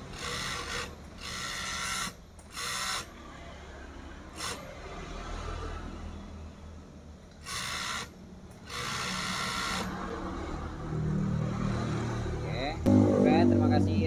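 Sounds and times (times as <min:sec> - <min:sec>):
overlock machine stitching fabric: 0:00.0 - 0:03.3, 0:04.3 - 0:05.0, 0:07.4 - 0:10.0.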